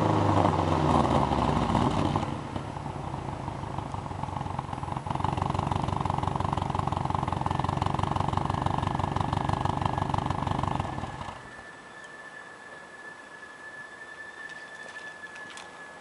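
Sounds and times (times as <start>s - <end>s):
car engine idling: 0.0s - 12.4s
faint steady high tone: 7.1s - 16.0s.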